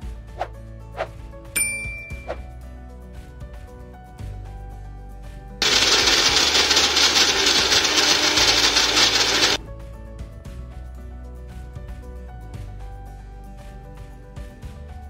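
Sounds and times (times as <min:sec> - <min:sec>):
blender motor grinding: 0:05.6 - 0:09.6.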